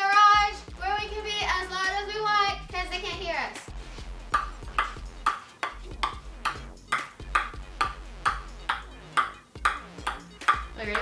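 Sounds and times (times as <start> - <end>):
ping-pong ball bouncing on paddle: 4.3 - 11.0.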